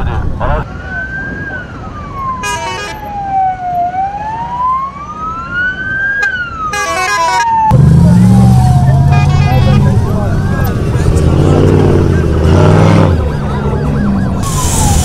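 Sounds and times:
low rumble of vehicle engines: 0:00.0 - 0:15.0
vehicle siren wailing: 0:00.6 - 0:15.0
short horn blasts: 0:02.4 - 0:03.0, 0:06.8 - 0:07.4, 0:09.1 - 0:09.8.

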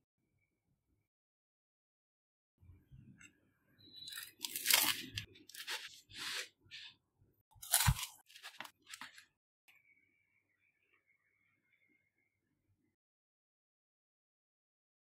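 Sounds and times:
knife crunching through pizza crust: 0:04.0 - 0:06.9, 0:07.6 - 0:09.2.

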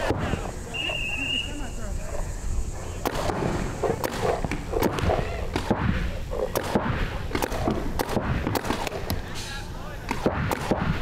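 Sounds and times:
paintball markers firing: 0:03.0 - 0:09.3, 0:10.0 - 0:11.0.

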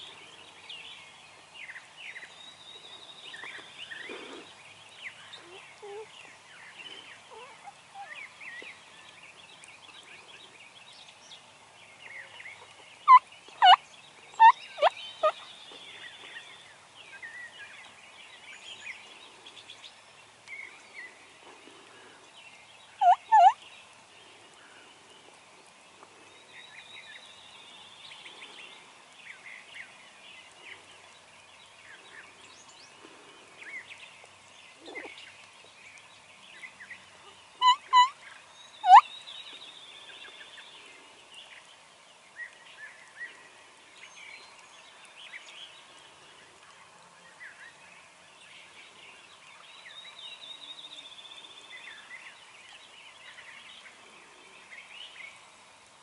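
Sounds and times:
faint songbirds chirping: 0:00.0 - 0:56.0
wild turkey calls: 0:06.9 - 0:08.4, 0:12.5 - 0:13.8, 0:14.4 - 0:15.4, 0:23.0 - 0:23.6, 0:34.8 - 0:35.2, 0:37.2 - 0:39.1.

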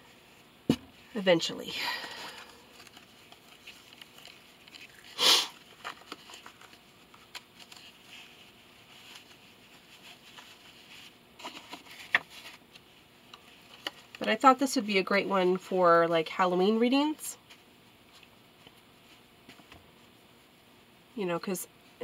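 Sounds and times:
cards handled with taps and clicks: 0:05.7 - 0:08.0.

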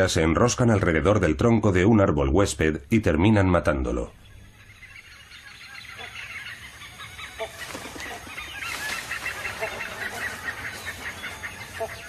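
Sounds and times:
birds chirping chorus: 0:00.0 - 0:12.0
bird honking calls: 0:04.1 - 0:12.0.

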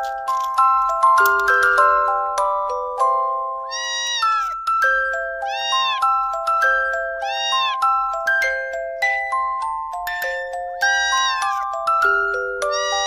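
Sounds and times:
kitten meowing: 0:03.7 - 0:04.6, 0:05.4 - 0:06.2, 0:07.2 - 0:07.8, 0:10.1 - 0:11.6, 0:12.6 - 0:13.0.

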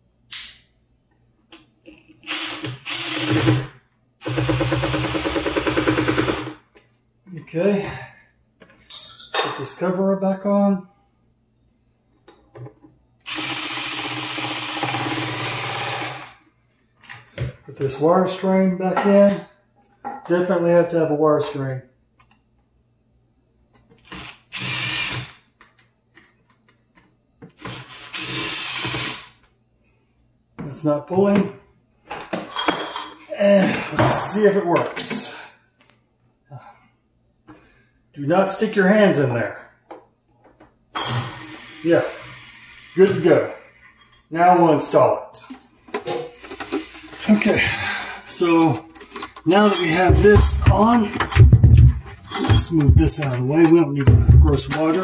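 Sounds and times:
impact driver driving screw: 0:02.3 - 0:06.5, 0:13.3 - 0:16.3, 0:27.6 - 0:29.4.

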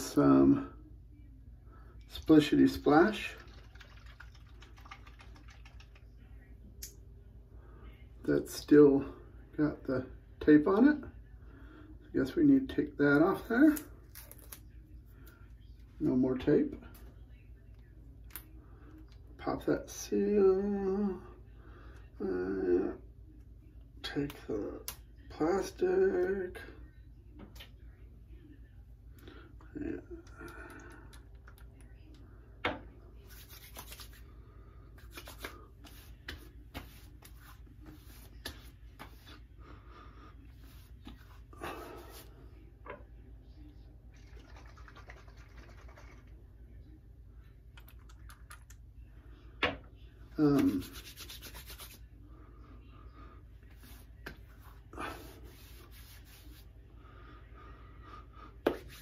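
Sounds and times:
hands rubbing face: 0:33.3 - 0:34.2, 0:35.0 - 0:39.3, 0:50.5 - 0:52.0, 0:55.2 - 0:56.7, 0:58.7 - 0:59.0.

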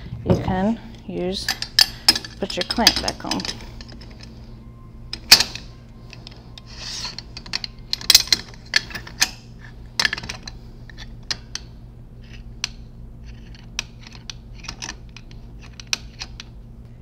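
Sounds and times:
metal scrape: 0:06.2 - 0:07.5.

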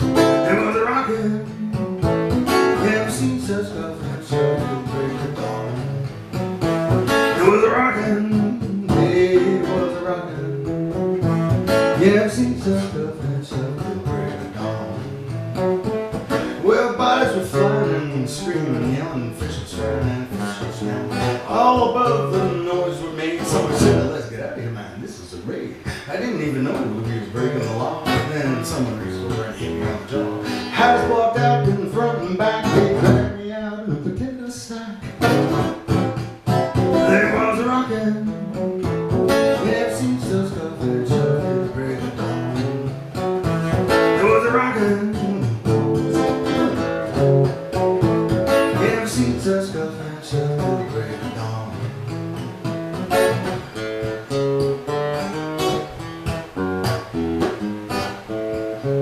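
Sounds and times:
acoustic guitar blues tune: 0:00.0 - 0:59.0.

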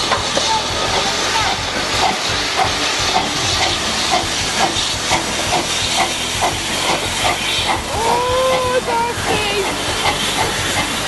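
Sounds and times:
steam engine exhaust chuffs: 0:00.0 - 0:11.0
steam hissing: 0:00.0 - 0:11.0.

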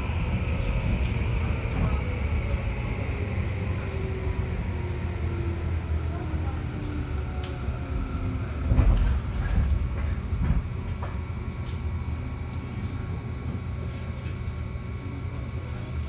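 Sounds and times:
train wheels rumbling on rail: 0:00.0 - 0:16.0
train clatter: 0:08.7 - 0:11.3.

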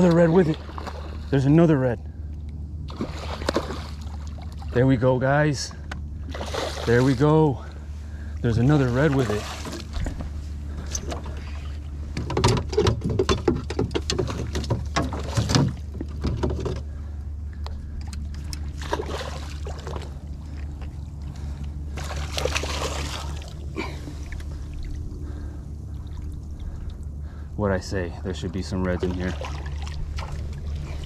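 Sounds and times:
steady low hum: 0:00.0 - 0:31.0
fish splashing at the surface: 0:02.9 - 0:04.6, 0:18.4 - 0:20.2, 0:21.9 - 0:23.6.

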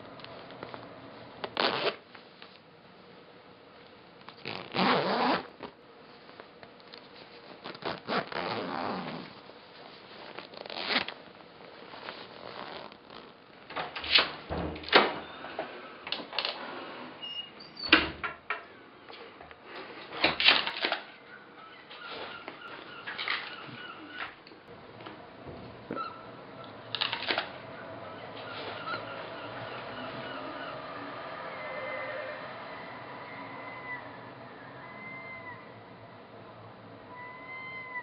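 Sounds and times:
rustling: 0:03.7 - 0:13.6
door opening and closing: 0:13.7 - 0:18.7, 0:25.4 - 0:30.8.

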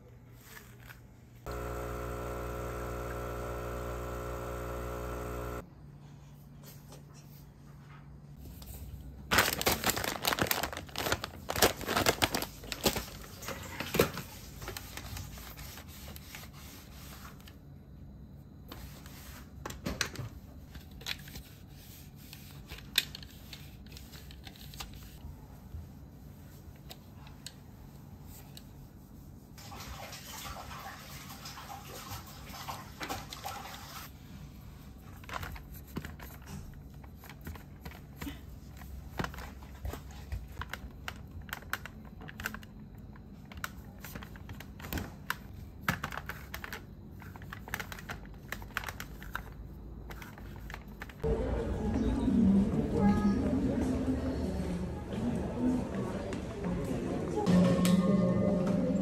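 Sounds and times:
cloth rubbing plastic: 0:00.3 - 0:05.6, 0:09.3 - 0:17.5.

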